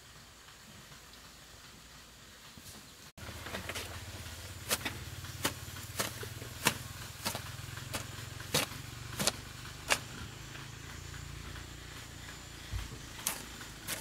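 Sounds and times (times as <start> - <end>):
low engine hum: 3.2 - 14.0
hand hoe chopping into soil: 3.4 - 10.3, 12.9 - 14.0.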